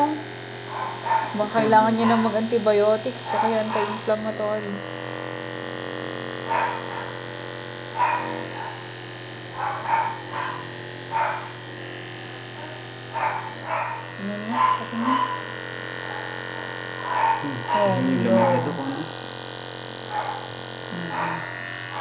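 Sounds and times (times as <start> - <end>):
electric hum: 0.0 - 22.0
small dog yelping: 17.1 - 18.9.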